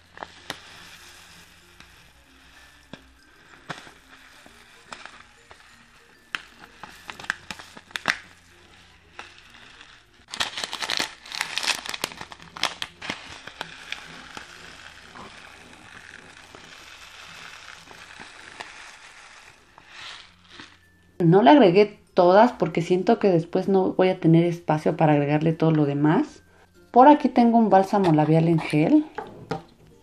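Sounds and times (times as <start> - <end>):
beads spilling with soft rustle: 0.0 - 21.0
plastic bag crinkling: 0.0 - 21.0.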